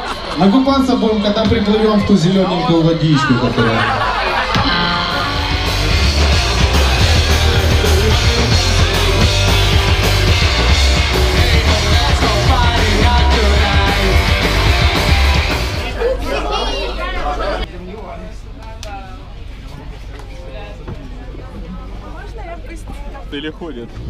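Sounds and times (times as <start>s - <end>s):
bass guitar: 1.3s - 17.7s
electric guitars: 3.6s - 16.0s
drum kit beat: 4.4s - 16.0s.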